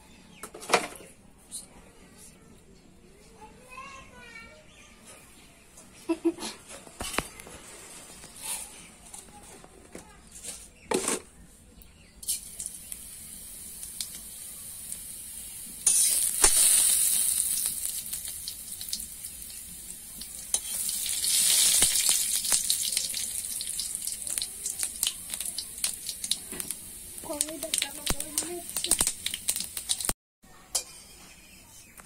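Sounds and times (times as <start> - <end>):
hot oil sizzling and crackling: 12.2 - 30.8.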